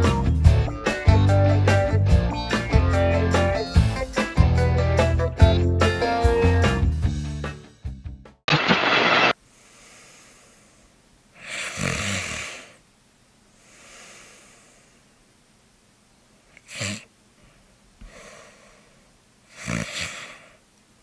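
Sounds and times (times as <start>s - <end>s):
soft breathing: 9.4s - 12.9s, 13.5s - 15.2s, 16.6s - 20.7s
person snoring: 11.4s - 12.8s, 16.6s - 17.1s, 19.5s - 20.6s
short sharp snort: 11.4s - 12.8s, 16.6s - 17.1s, 19.5s - 20.6s.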